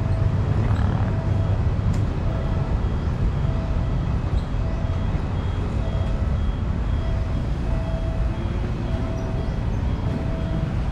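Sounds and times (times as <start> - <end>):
steady low rumble: 0.0 - 10.9
electronic two-note warning chime: 2.2 - 10.9.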